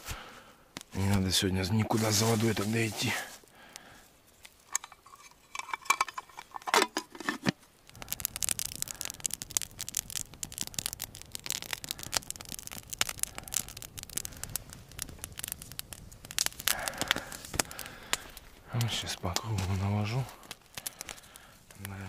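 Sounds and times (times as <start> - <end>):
campfire crackling: 0.0 - 22.0
metal mess tin clinking: 4.7 - 7.5.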